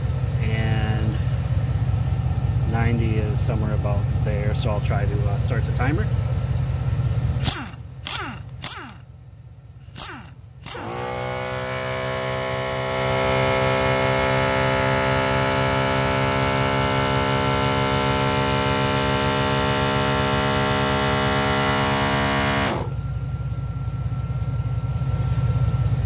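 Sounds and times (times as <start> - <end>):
low steady hum: 0.0 - 14.6, 15.7 - 26.0
portable air compressor running: 7.3 - 9.2, 9.8 - 23.1.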